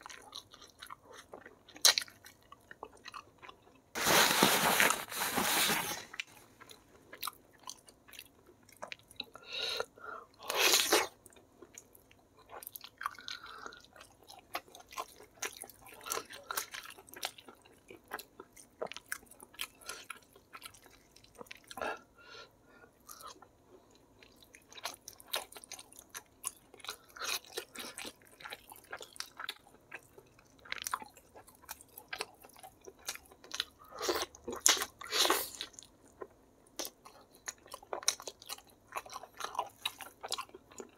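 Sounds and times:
man chewing and biting food: 24.2 - 40.9.

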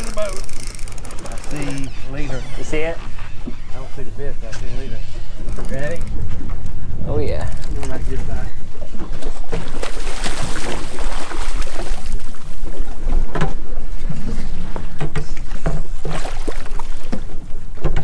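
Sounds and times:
wind rumbling on microphone: 0.0 - 18.0
knocks and splashes: 8.9 - 18.0
water slapping against boat hull: 9.0 - 12.5, 14.6 - 18.0.

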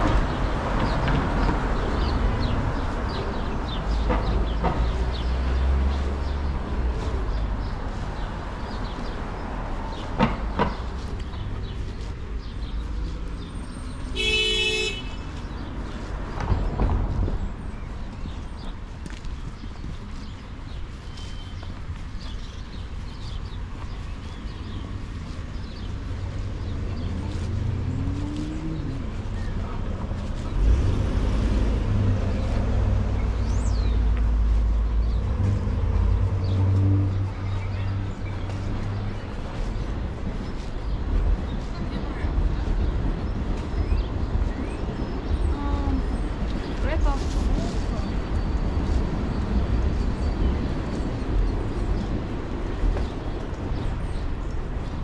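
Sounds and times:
street traffic rumble: 0.0 - 55.0
vehicle horn toot: 14.2 - 15.2.

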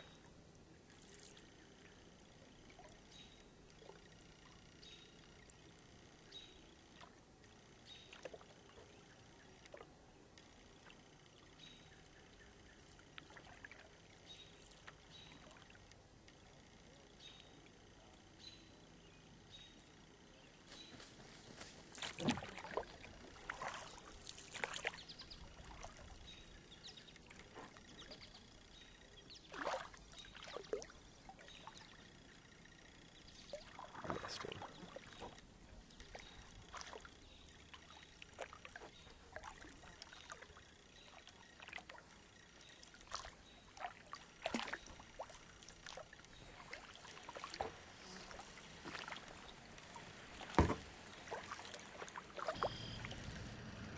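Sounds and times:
kayak paddle splashing: 21.7 - 53.9
water dripping off paddle: 33.5 - 53.6.

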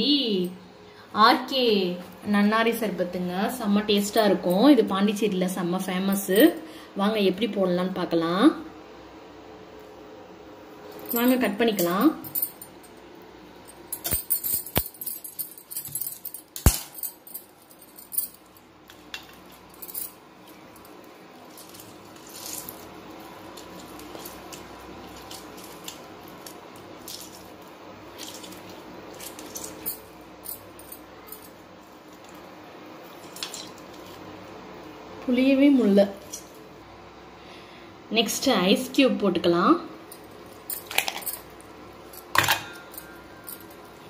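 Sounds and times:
glass bangles clinking: 11.0 - 12.8, 13.7 - 34.2, 40.1 - 44.0.

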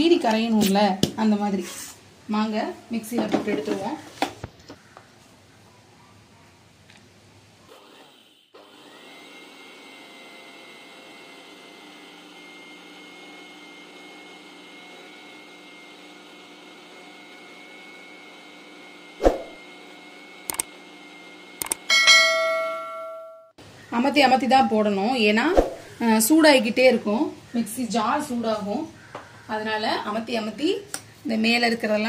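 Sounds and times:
mixer grinder motor whining: 7.7 - 21.8
clicks: 20.5 - 20.7, 21.6 - 21.9.

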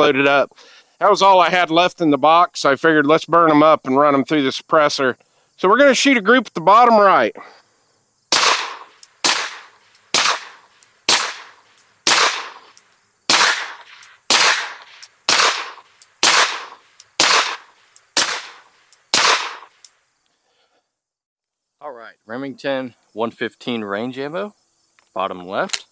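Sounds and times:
suppressed pistol shots: 8.3 - 12.7, 13.3 - 19.7.

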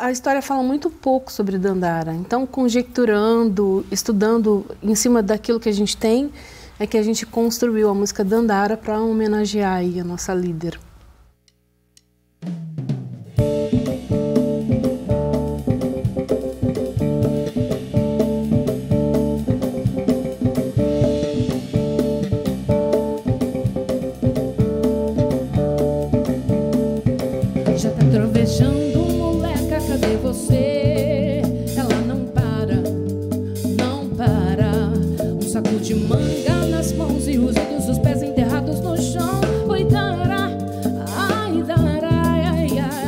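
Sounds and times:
congas: 12.4 - 43.0
drum kit with cymbals: 12.4 - 43.0
electric bass: 12.8 - 43.0
keyboard: 13.4 - 43.0
live soul-jazz band: 13.4 - 43.0
woman singing with vibrato: 27.7 - 33.1, 33.7 - 43.0.

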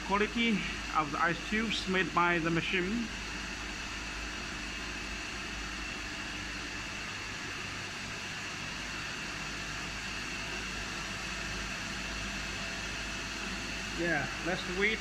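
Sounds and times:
compressor hum: 0.0 - 15.0
faint high whine: 8.9 - 15.0.

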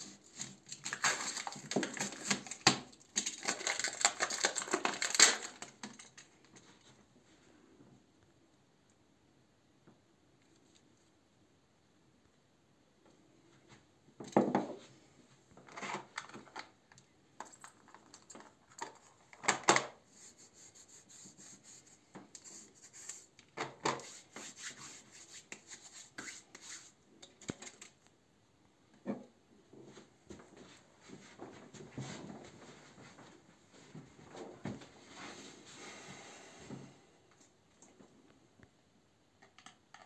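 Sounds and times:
hands rubbing together: 20.1 - 23.3, 24.0 - 27.0.

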